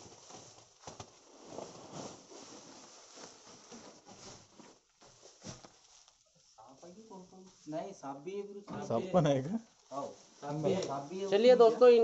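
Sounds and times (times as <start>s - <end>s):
plastic sacks and twigs rustling: 0.0s - 8.1s.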